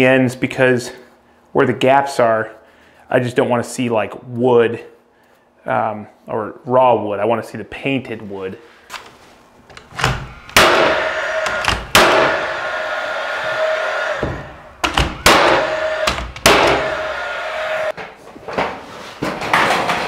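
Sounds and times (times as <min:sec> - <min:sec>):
steady hum: 0:08.3 - 0:17.9
nail gun shots: 0:10.5 - 0:12.4, 0:14.8 - 0:17.0.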